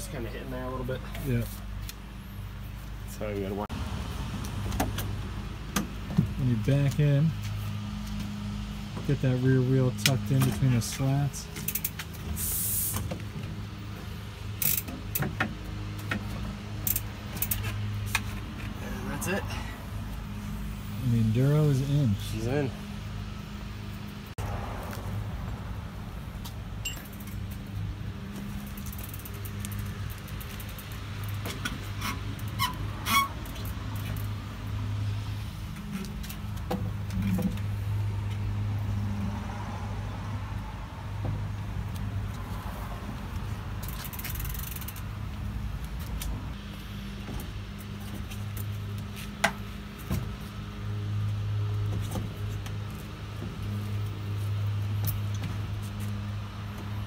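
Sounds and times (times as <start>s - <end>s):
bikes rattling and clicking: 10.0s - 19.0s, 26.7s - 34.9s, 41.5s - 57.0s.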